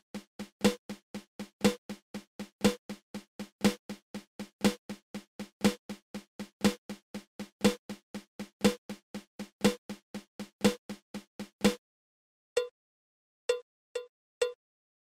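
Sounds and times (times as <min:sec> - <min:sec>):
snare drum rudiment: 0:00.0 - 0:11.8.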